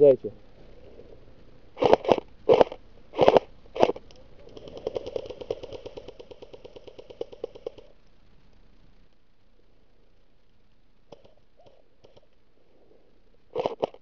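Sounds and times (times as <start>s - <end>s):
airsoft gun firing bursts: 1.8s - 7.9s.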